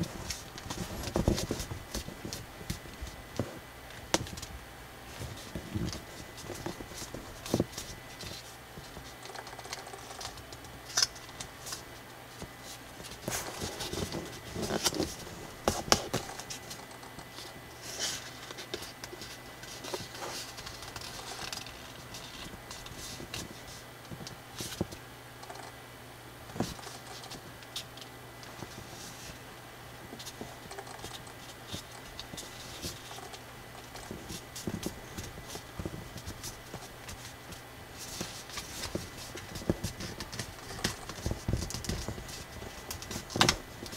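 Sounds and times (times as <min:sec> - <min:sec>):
faint steady hum: 0:00.0 - 0:43.9
paper being folded and creased: 0:05.1 - 0:23.8, 0:30.1 - 0:43.9.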